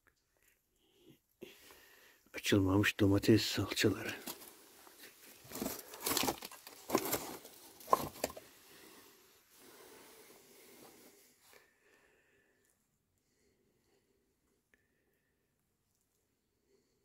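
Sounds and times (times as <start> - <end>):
tin cans rustling and knocking: 4.1 - 8.6.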